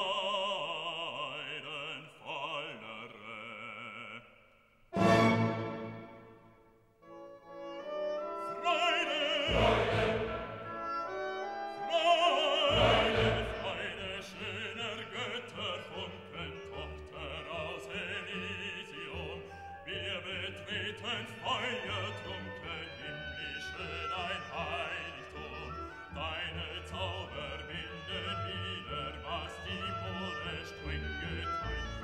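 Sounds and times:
operatic singing voice: 0.0 - 5.9, 8.4 - 10.9, 11.7 - 32.0
orchestra: 4.9 - 32.0.

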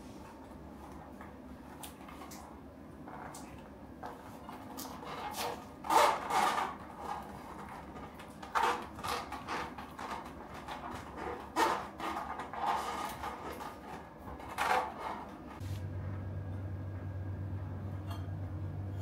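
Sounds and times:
fingers rubbing crinkling tape: 4.8 - 15.6.

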